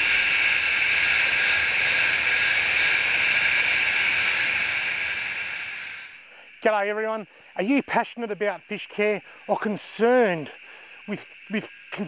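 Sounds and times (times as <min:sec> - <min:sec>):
high-pitched hiss: 0:00.0 - 0:12.0.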